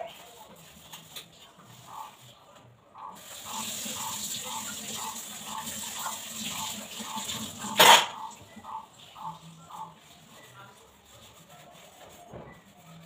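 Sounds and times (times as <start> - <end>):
tap water running into sink: 3.2 - 8.2.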